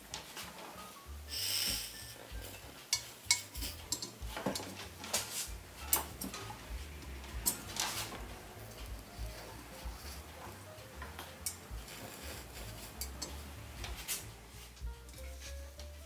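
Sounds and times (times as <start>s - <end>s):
light metallic clicks and clinks: 2.4s - 6.6s, 7.2s - 9.0s.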